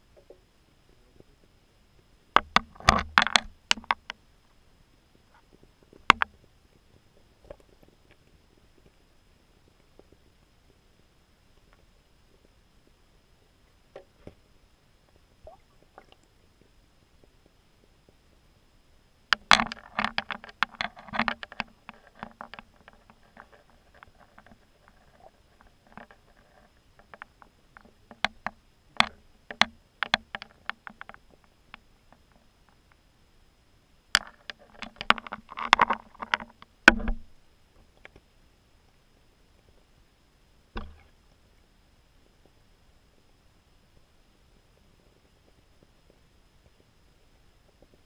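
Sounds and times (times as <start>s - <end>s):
muffled underwater clicks and knocks: 0.1s - 0.5s, 2.3s - 4.2s, 5.3s - 9.0s, 13.9s - 14.4s, 19.3s - 33.0s, 34.1s - 38.3s, 40.7s - 41.2s.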